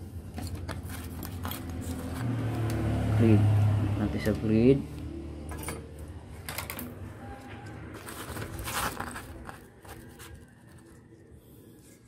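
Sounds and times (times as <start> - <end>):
paper rustling: 0.3 - 2.6, 7.9 - 11.1
handling noise: 5.5 - 11.0.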